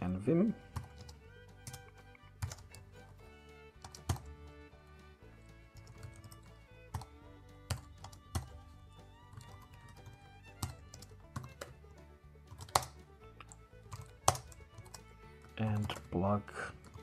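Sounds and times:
quiet background music: 0.0 - 17.0
keyboard typing: 0.7 - 2.9, 3.8 - 4.3, 5.7 - 8.7, 9.3 - 11.8, 12.5 - 16.2.

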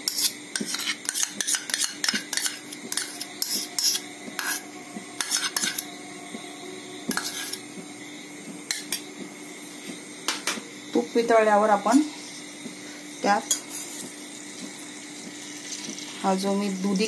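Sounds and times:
spoon scraping and clinking in bowl: 0.0 - 5.9, 7.1 - 7.7.

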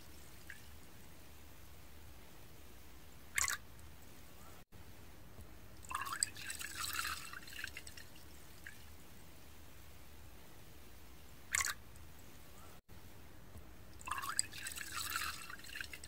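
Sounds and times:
liquid dripping: 0.0 - 0.9, 3.3 - 3.9, 5.8 - 8.9, 11.5 - 12.2, 13.5 - 16.0
liquid pouring and splashing into cup: 3.4 - 3.6, 5.8 - 8.8, 11.5 - 11.8, 14.0 - 16.0.

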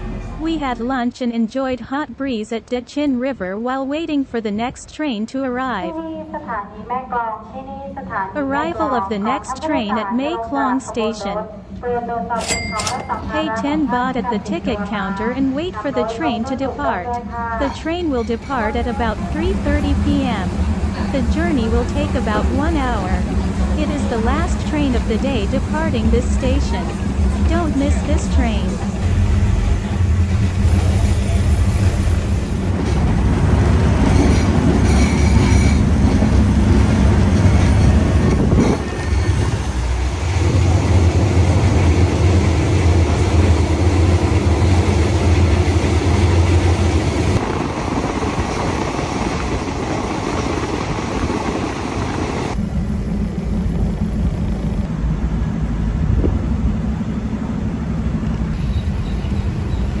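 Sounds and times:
train wheels rumbling on track: 13.0 - 60.0
diesel engine drone: 13.4 - 34.0, 52.3 - 60.0.

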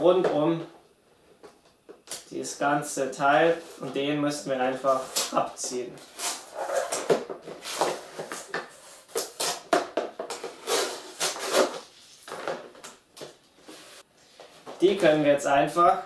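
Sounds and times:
plastic packaging rustling and scraping: 4.9 - 9.7, 10.3 - 14.7.

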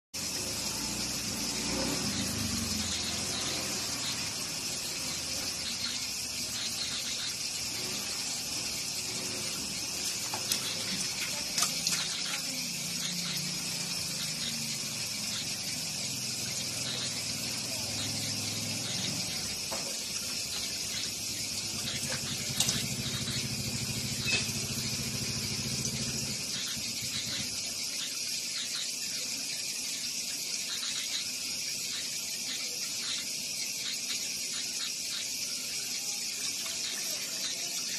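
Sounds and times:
water trickling over rim: 0.2 - 28.0
tap water running into tub: 0.2 - 37.9.

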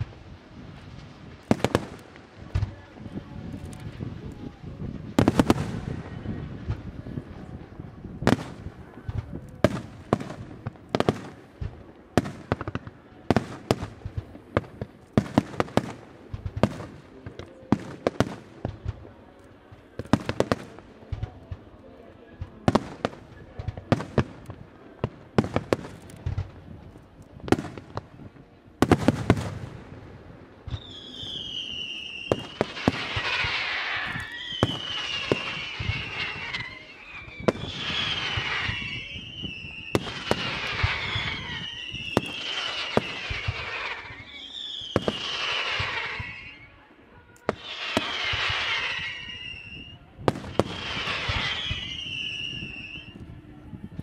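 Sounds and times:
firework crackling hiss: 0.0 - 21.4, 22.7 - 46.8, 47.4 - 54.0
firework bangs: 0.0 - 21.7, 22.4 - 46.7, 47.4 - 53.2
falling firework whistle: 30.7 - 53.4.

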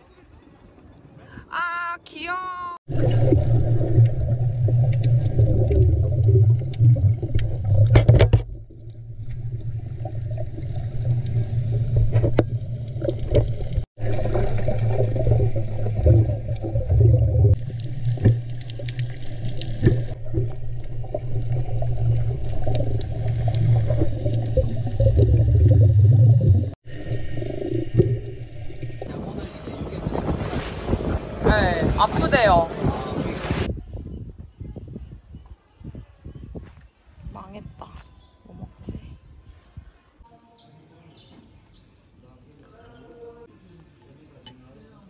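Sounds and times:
bubbling and gurgling: 2.9 - 32.0
underwater rumble of water: 2.9 - 33.7.

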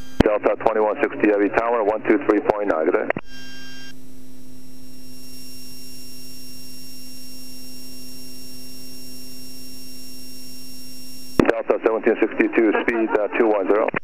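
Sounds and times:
turboprop engine drone: 0.0 - 14.0
thin high whine: 3.1 - 11.6.

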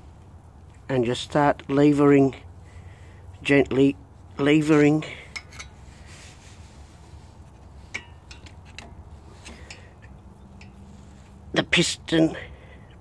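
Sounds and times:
screwdriver metallic clicks and scrapes: 4.4 - 6.6, 7.4 - 11.2.

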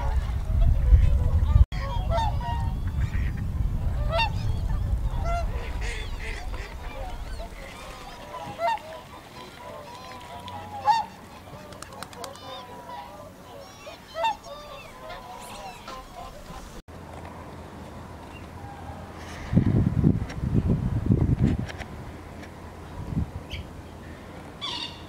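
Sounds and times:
wind rumbling on microphone: 0.0 - 9.8, 18.6 - 24.6
swans and geese honking: 0.0 - 16.8, 23.5 - 25.0.

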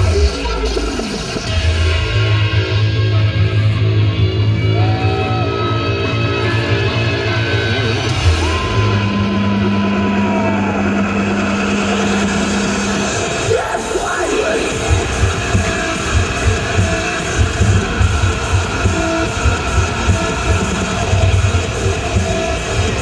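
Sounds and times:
bass-heavy electronic music: 0.0 - 23.0.

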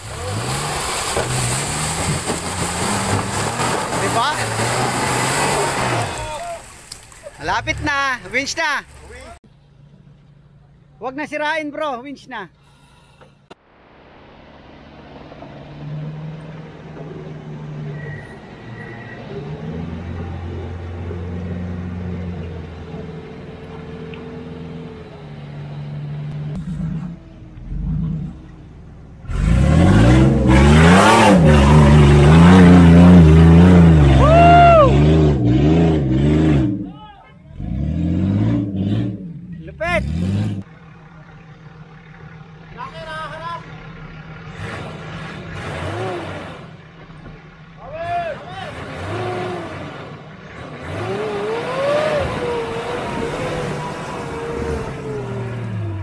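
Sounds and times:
engine revving hard: 0.0 - 6.4, 29.2 - 36.9, 37.5 - 40.7, 43.4 - 46.9, 47.9 - 56.0.

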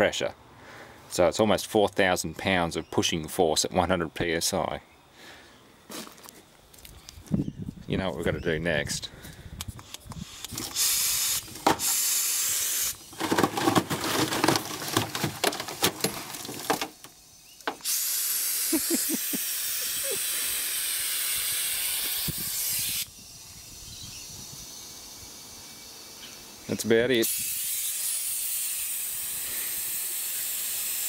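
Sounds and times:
compressed air hissing: 9.3 - 13.2, 17.7 - 26.6, 27.2 - 31.0.

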